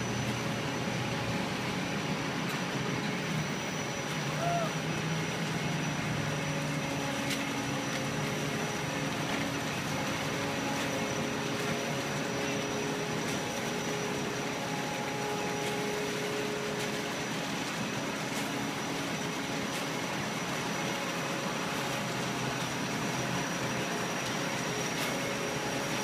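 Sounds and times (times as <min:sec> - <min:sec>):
diesel engine running: 0:00.0 - 0:26.0.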